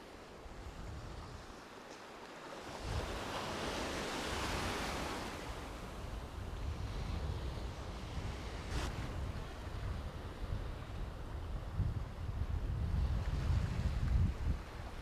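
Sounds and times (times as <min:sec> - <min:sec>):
wind rumbling on microphone: 0:00.0 - 0:01.8, 0:02.6 - 0:15.0
small waves breaking: 0:00.0 - 0:11.5.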